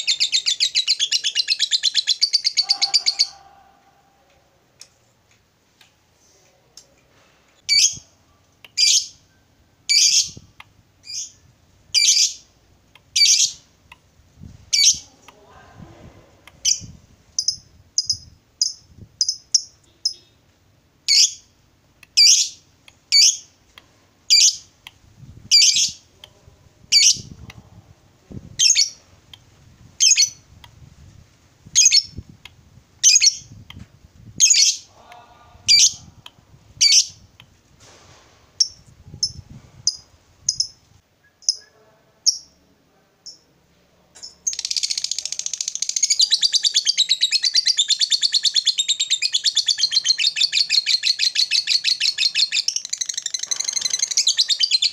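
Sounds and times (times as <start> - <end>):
lovebird chattering trill: 0.0 - 3.4, 16.6 - 20.3, 44.4 - 54.9
lovebird calling: 0.0 - 3.6, 14.7 - 15.1, 24.3 - 24.7, 36.8 - 37.2, 44.2 - 54.9.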